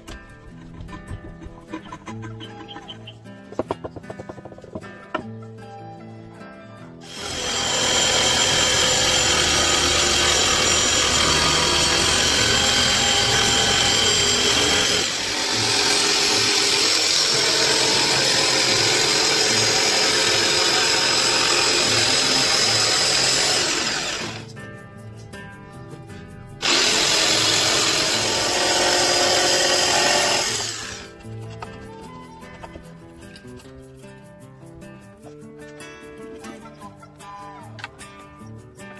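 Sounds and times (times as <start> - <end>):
jigsaw cutting wood: 7.0 - 24.5, 26.6 - 31.1.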